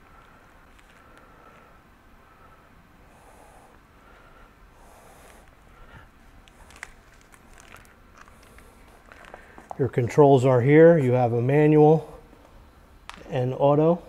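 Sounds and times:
cables rustling: 0.0 - 1.8, 4.9 - 10.7.

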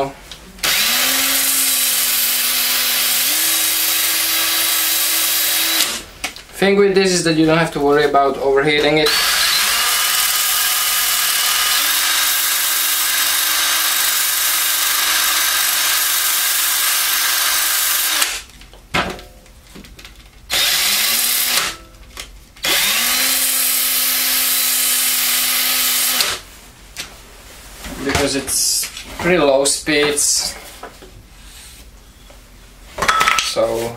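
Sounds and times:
cordless drill motor whine: 0.6 - 6.0, 9.1 - 18.4, 20.5 - 21.7, 22.6 - 26.4.

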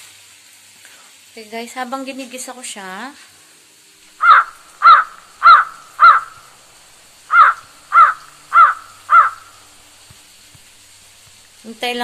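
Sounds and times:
crow cawing: 4.1 - 10.8.

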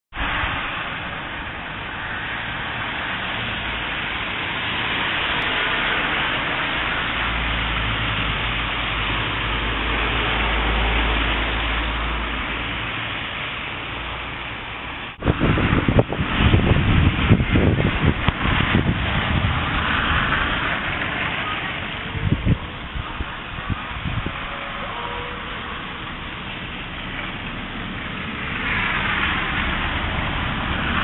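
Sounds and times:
vehicle passing rumble: 0.1 - 31.0
city street traffic hiss: 0.2 - 31.0.

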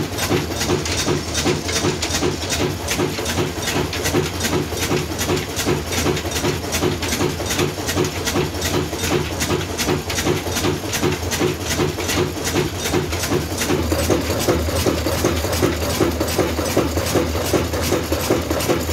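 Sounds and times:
diesel engine running: 8.8 - 18.9.

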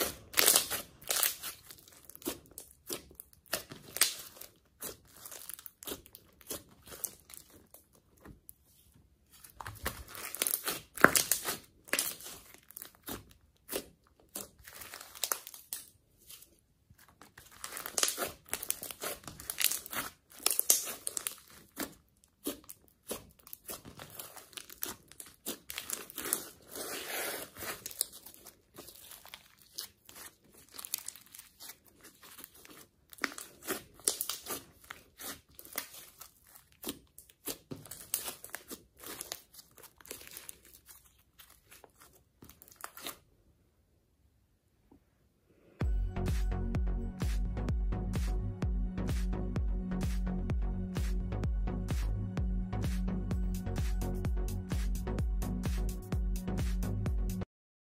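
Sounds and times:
sticky slime clicks and crackles: 17.6 - 26.5, 27.6 - 40.9.

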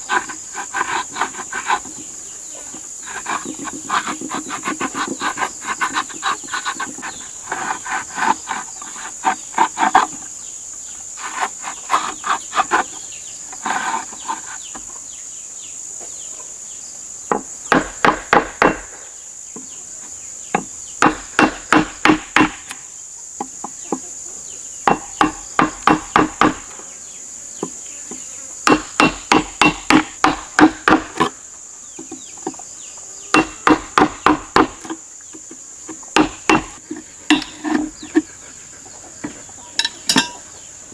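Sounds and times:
high insect drone: 0.0 - 40.9
hammer striking wood chisel: 20.6 - 22.8, 24.9 - 26.6, 28.6 - 31.3, 33.3 - 34.9, 36.2 - 37.9.

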